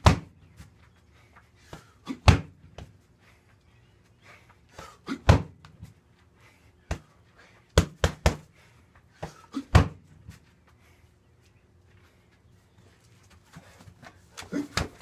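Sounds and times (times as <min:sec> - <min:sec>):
punches and kicks on heavy bag: 0:00.0 - 0:00.4, 0:02.1 - 0:02.9, 0:05.1 - 0:05.8, 0:07.8 - 0:08.5, 0:09.2 - 0:10.1.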